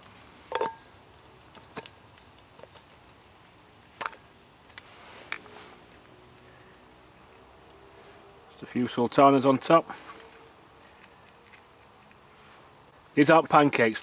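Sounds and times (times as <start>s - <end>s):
batter sizzling in oil: 0.0s - 11.0s.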